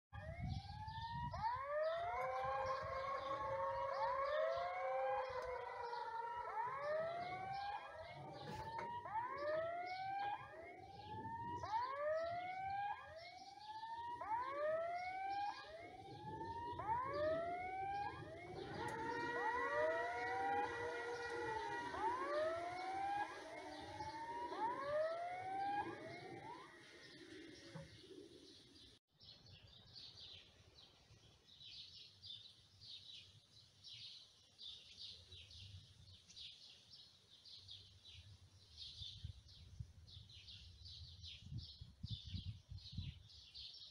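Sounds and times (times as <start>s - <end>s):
rising electronic warning whoops: 1.2s - 13.1s, 14.2s - 27.8s.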